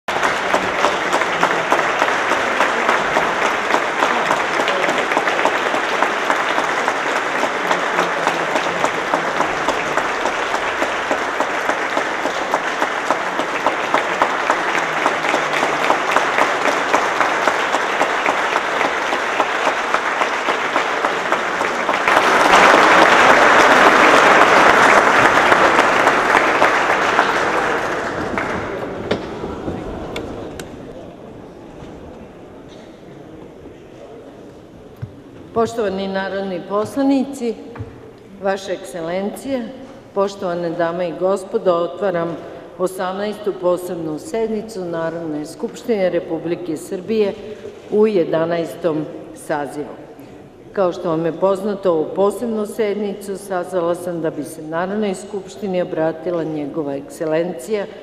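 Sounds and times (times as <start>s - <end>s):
audience applause: 0.0s - 31.6s.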